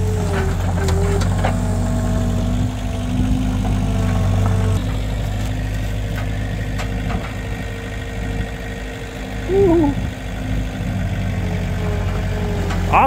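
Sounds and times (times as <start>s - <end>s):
engine idling: 0.0s - 13.0s
short wavering pitched sound: 9.5s - 10.0s.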